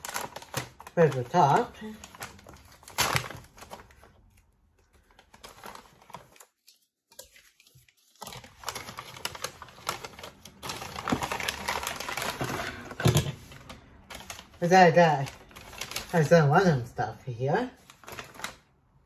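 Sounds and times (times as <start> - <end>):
paper bag crinkling and rustling: 0.0 - 17.0, 17.6 - 18.8.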